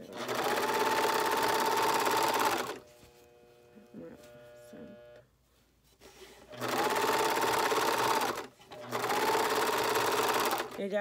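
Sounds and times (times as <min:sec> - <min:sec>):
overlock sewing machine whine: 0:00.0 - 0:02.8, 0:06.5 - 0:10.8.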